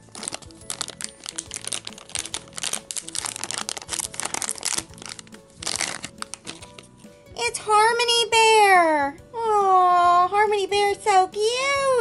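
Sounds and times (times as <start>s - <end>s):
plastic wrapper crinkling: 0.0s - 7.1s
quiet background music: 0.0s - 12.0s.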